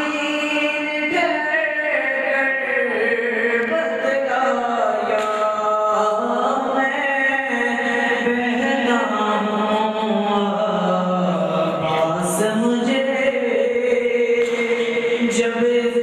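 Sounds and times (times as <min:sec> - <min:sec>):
man chanting devotional poem: 0:00.0 - 0:16.0.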